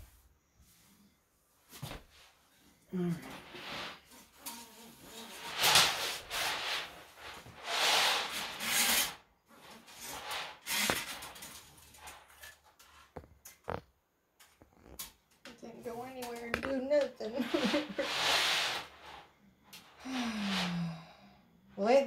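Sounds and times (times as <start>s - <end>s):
metal cable rubbing through rag: 3.4s - 13.2s, 17.2s - 19.4s
cable scraping: 3.6s - 13.8s, 17.2s - 19.3s.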